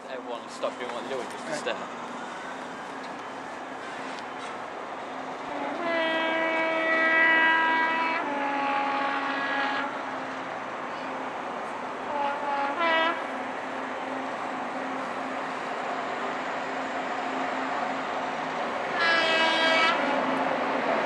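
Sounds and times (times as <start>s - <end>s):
two-tone train horn: 5.5s - 10.0s, 12.1s - 13.4s, 18.9s - 20.3s.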